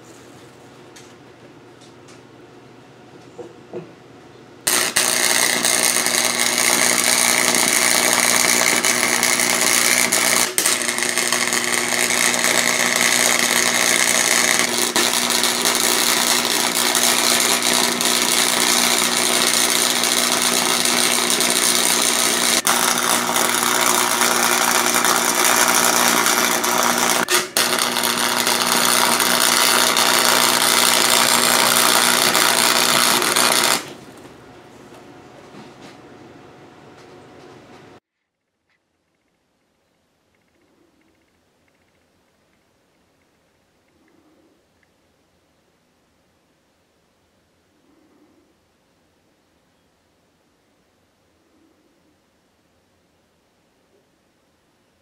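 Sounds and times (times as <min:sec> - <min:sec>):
welding arc crackling hiss: 0:04.7 - 0:34.1.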